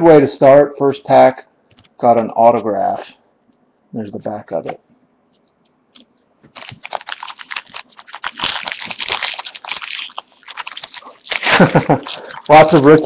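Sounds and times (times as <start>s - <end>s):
foil wrapper tearing and crinkling: 6.0s - 13.0s.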